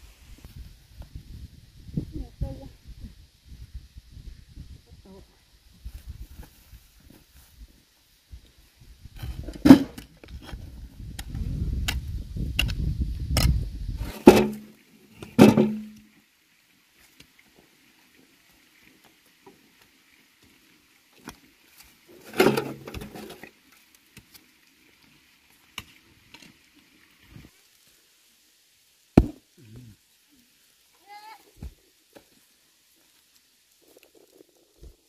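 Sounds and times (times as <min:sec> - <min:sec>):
hoe striking into earth: 0:09.3 - 0:10.1, 0:13.4 - 0:16.0, 0:22.3 - 0:23.3, 0:29.2 - 0:29.4
thudding and scraping: 0:15.2 - 0:15.9, 0:22.2 - 0:23.4.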